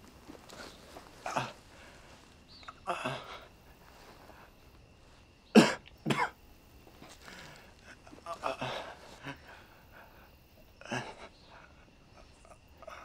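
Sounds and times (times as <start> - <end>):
person coughing: 5.5 - 6.4.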